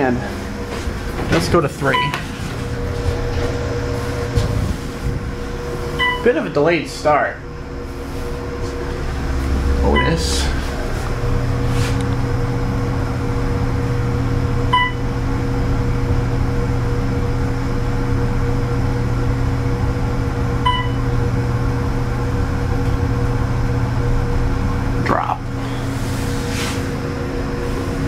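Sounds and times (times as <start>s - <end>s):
cab fan running: 0.0s - 28.0s
elevator cab humming: 0.0s - 28.0s
elevator chime dings: 1.9s - 2.2s, 6.0s - 6.4s, 9.9s - 10.4s, 14.7s - 15.0s, 20.6s - 21.0s.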